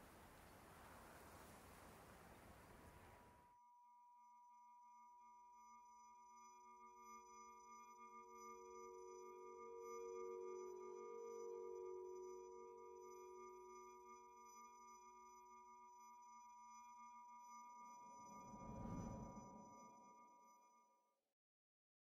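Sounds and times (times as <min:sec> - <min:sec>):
faint hiss: 0:00.0 - 0:03.4
faint musical drone: 0:18.2 - 0:20.1.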